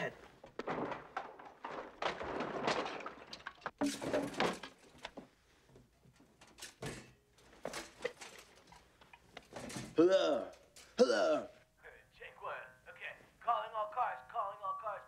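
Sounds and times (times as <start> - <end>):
rustling and clattering of things: 0.0 - 11.0.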